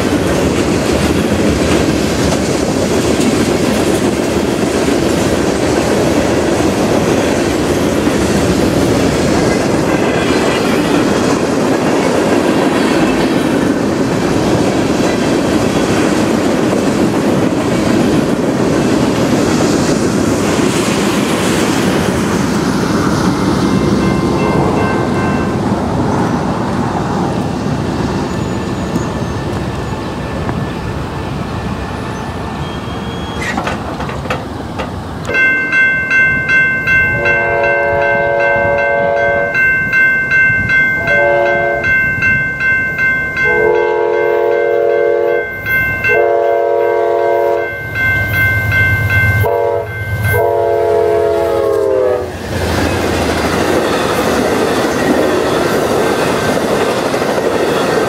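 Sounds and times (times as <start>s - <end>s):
train wheels rumbling and clattering: 0.0s - 58.0s
crossing signal bell ringing: 23.9s - 25.7s, 35.2s - 52.1s, 57.3s - 58.0s
train horn blasts: 37.1s - 39.6s, 41.0s - 41.9s, 43.4s - 45.5s, 46.1s - 47.8s, 49.4s - 52.3s.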